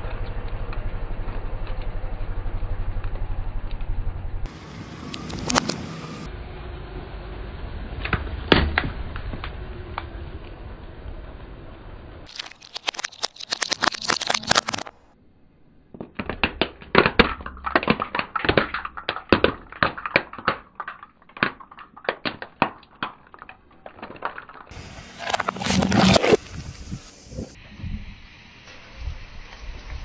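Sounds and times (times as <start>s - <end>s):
plastic cracking under car tyre: 12.3s - 15.0s, 15.9s - 26.4s.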